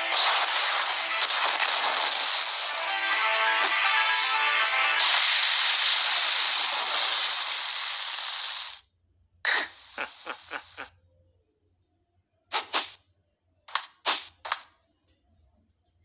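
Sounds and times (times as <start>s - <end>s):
sharp hit: 0.0s - 2.9s
cartoon rushing sand hiss: 0.0s - 8.9s, 9.5s - 10.9s, 12.5s - 13.0s.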